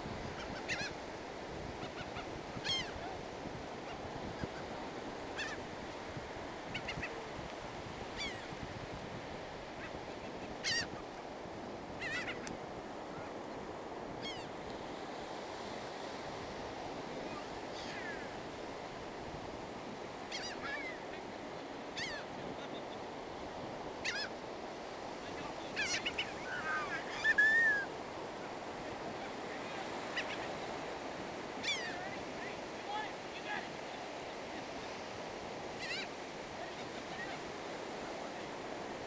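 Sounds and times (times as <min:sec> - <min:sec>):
surf hiss: 0:00.0 - 0:39.0
gulls calling: 0:00.3 - 0:01.0, 0:01.8 - 0:03.2, 0:03.8 - 0:05.7, 0:06.6 - 0:07.3, 0:08.1 - 0:08.5, 0:09.7 - 0:11.1, 0:12.0 - 0:12.5, 0:14.2 - 0:14.6, 0:20.2 - 0:21.3, 0:21.9 - 0:23.2, 0:24.0 - 0:24.4, 0:25.3 - 0:27.9, 0:29.0 - 0:34.5, 0:35.7 - 0:37.4.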